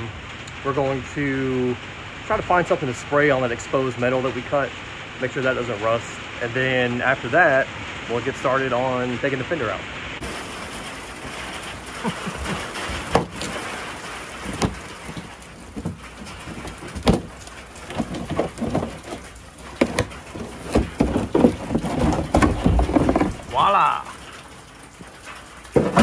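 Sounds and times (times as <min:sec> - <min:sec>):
plastic liner clicking and scraping: 0:10.2 - 0:26.0.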